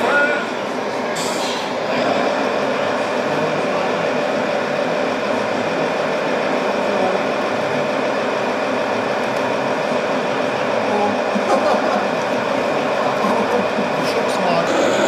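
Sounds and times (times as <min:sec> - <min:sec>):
toy truck motor and gearbox: 0:14.7 - 0:15.0.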